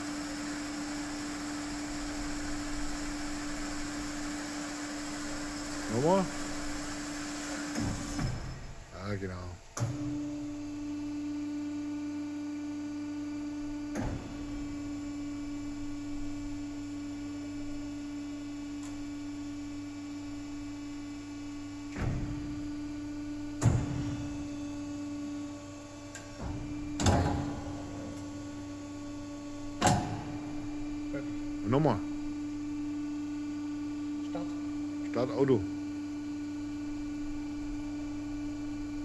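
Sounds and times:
mechanical clunks: 9.8 - 10.2, 13.9 - 14.6, 23.5 - 24.4, 26.1 - 28.4, 29.7 - 30.8.

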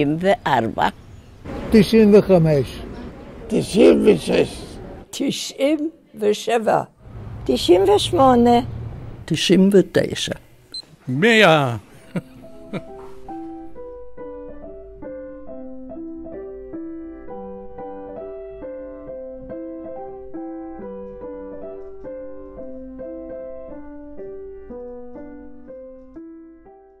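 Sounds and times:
gentle piano melody: 11.9 - 27.0.

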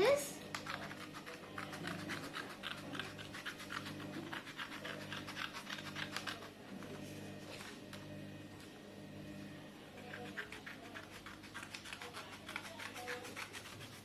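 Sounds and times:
steady low hum: 0.0 - 13.1
scissors snipping paper: 0.5 - 6.6, 10.0 - 14.0.

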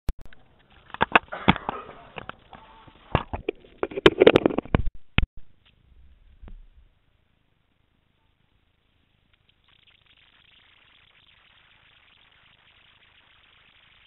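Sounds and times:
scraping of camera handling: 3.2 - 4.8.

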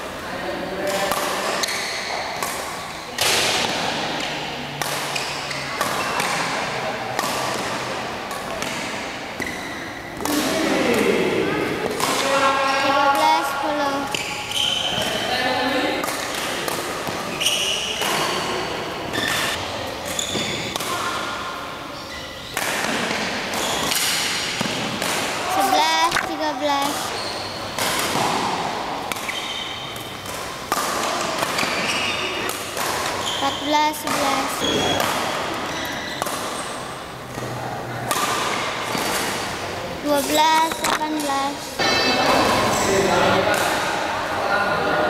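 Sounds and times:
racket striking shuttlecock: 0.9 - 9.6, 11.8 - 12.4, 16.0 - 18.5, 19.1 - 21.4, 22.5 - 36.7, 38.1 - 39.5, 40.1 - 42.4, 43.5 - 43.9
shoes squeaking on court: 5.1 - 6.5, 9.4 - 10.2, 13.2 - 15.4, 17.0 - 20.8, 21.9 - 24.7, 25.6 - 28.3, 29.2 - 30.3, 31.1 - 36.9, 40.1 - 42.8.

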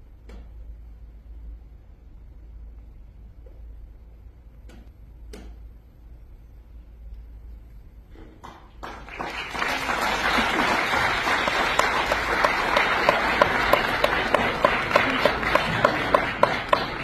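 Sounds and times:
audience applause: 8.4 - 17.0
nearby hands clapping evenly: 8.4 - 17.0.

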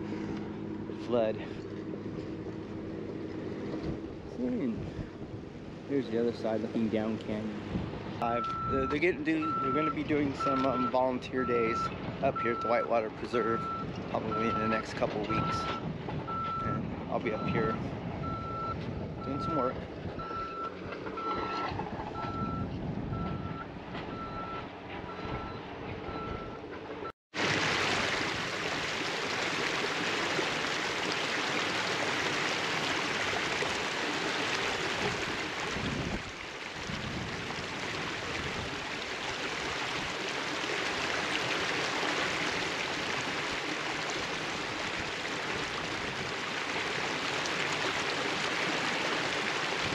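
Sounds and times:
engine rumble: 0.0 - 49.9
reversing alarm beeping: 8.3 - 12.9, 13.5 - 19.6, 20.2 - 26.6
river water rushing: 27.4 - 49.9.

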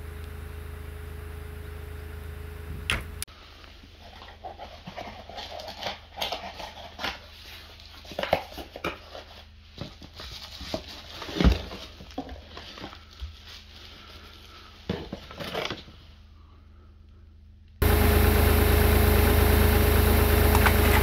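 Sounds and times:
cardboard box rustling and crinkling: 4.0 - 16.1.

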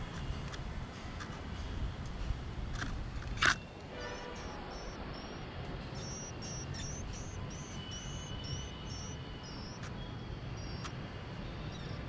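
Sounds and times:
high bird chirps: 4.0 - 9.9, 10.6 - 10.9.

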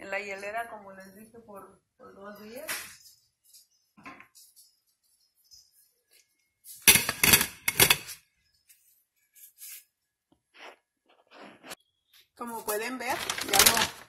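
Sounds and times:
ice cubes clinking in plastic bag: 12.6 - 14.0.

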